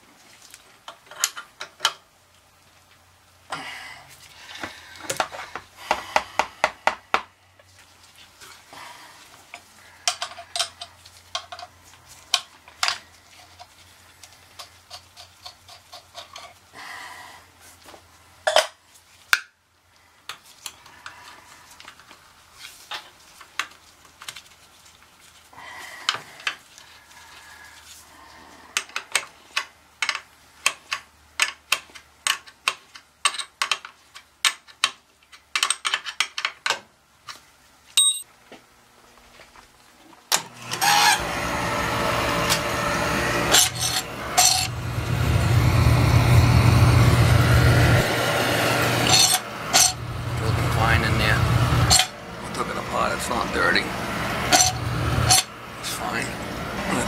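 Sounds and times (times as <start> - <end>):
metal tools clinking on fitting: 38.0 - 38.2, 43.5 - 44.7, 49.0 - 50.0, 51.9 - 52.1, 54.5 - 55.5.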